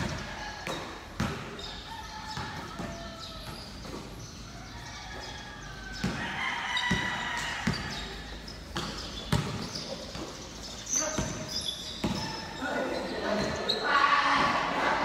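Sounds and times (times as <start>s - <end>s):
basketball bouncing on hard floor: 0.0s - 4.1s, 6.0s - 8.1s, 8.7s - 10.4s, 11.1s - 12.5s.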